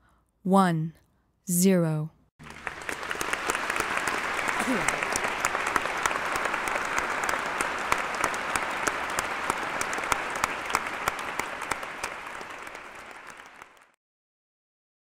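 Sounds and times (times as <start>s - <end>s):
crowd applauding: 2.4s - 14.0s.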